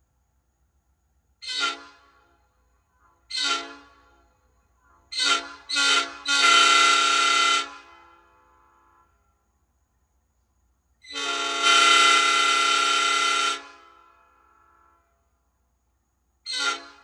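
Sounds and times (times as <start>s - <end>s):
train horn honking: 1.4s - 2.5s, 3.2s - 4.4s, 5.1s - 9.4s, 11.0s - 15.3s, 16.5s - 17.0s.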